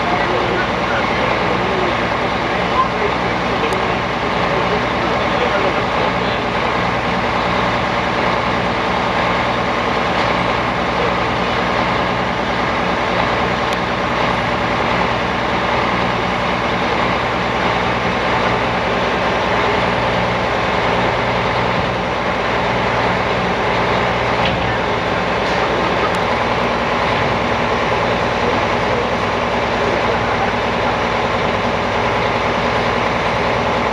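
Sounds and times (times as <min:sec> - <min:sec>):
heavy diesel truck engine running: 0:00.0 - 0:33.9.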